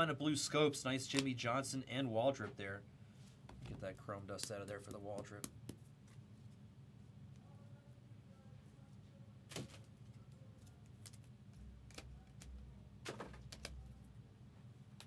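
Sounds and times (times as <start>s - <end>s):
trading cards clicking and tapping: 4.3s - 5.8s.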